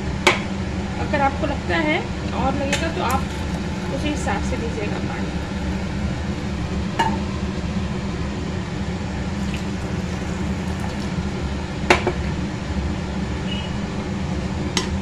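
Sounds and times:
low hum: 0.6s - 14.3s
water bubbling on the boil: 1.4s - 8.1s, 9.2s - 13.3s.

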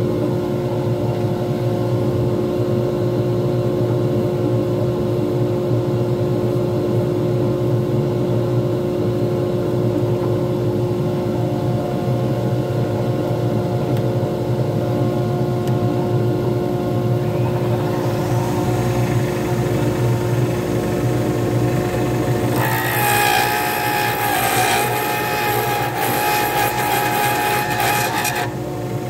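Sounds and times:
wood lathe motor hum: 17.1s - 29.0s.

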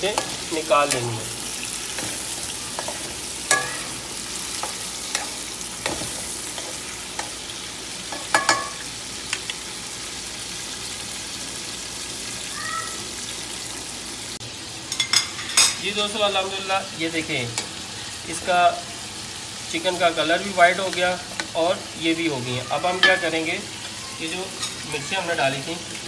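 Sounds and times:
chicken sizzling in hot oil: 0.0s - 26.0s.

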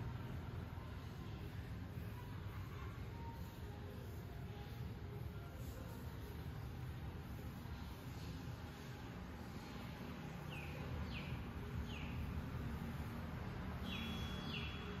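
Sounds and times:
bird chirping: 10.4s - 12.3s, 13.8s - 15.0s.

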